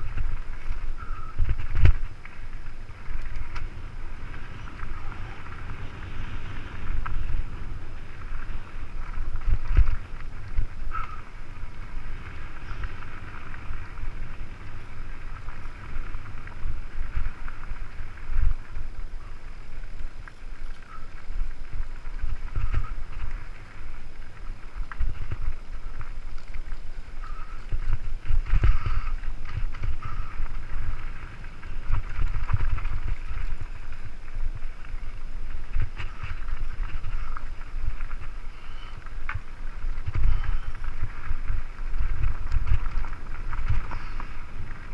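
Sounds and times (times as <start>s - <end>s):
bike rattling over stones: 0.0s - 44.9s
wind across microphone: 0.0s - 44.9s.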